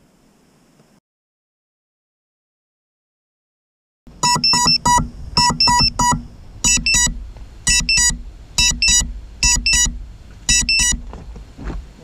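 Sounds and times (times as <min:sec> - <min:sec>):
drone buzzer beeping: 0:04.2 - 0:11.0.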